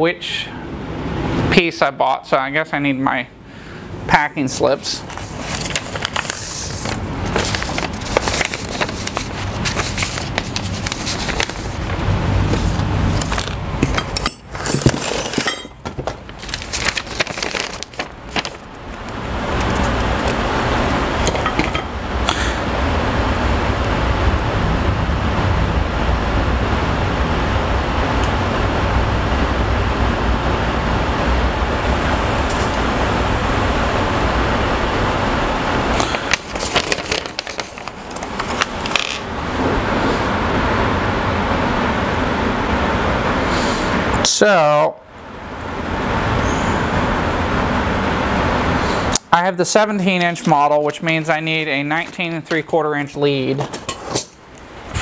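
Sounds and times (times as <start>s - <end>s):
papers and hardware handled: 5.0s - 20.4s, 36.0s - 39.5s.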